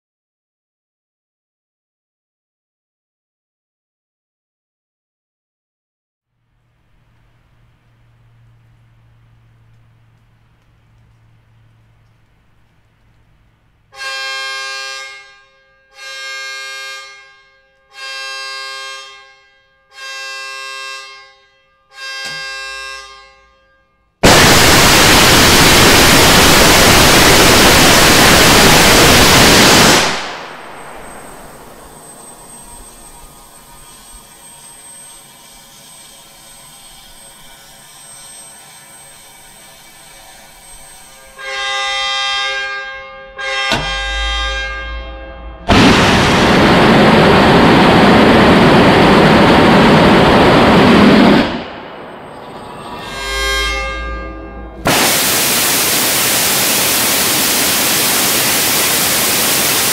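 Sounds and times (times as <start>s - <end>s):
quiet hiss: 6.3s - 14.0s, 25.0s - 41.5s
rocket engine rushing roar: 24.2s - 34.9s, 45.5s - 59.9s.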